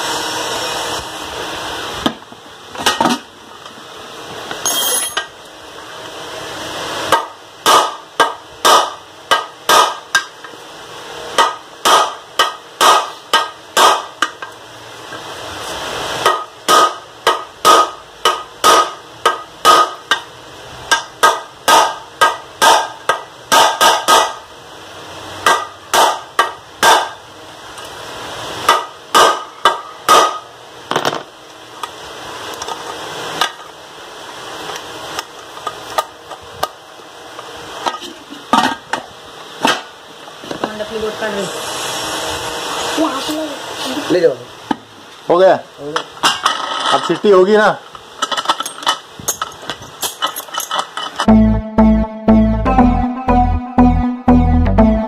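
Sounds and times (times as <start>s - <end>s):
hammer striking metal: 4.6s - 5.3s, 7.1s - 10.3s, 11.4s - 14.4s, 16.2s - 20.3s, 20.9s - 24.4s, 25.4s - 27.2s, 28.7s - 30.5s.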